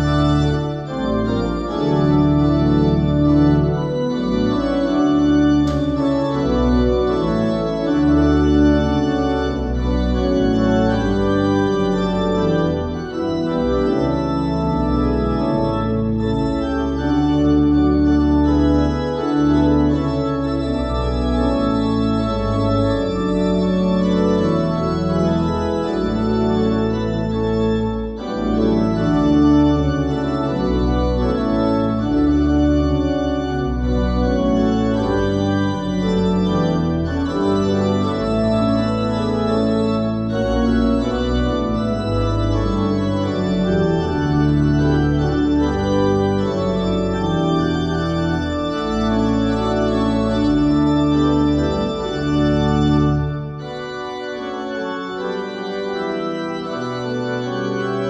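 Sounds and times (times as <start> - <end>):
church organ chords: 0.0 - 58.0.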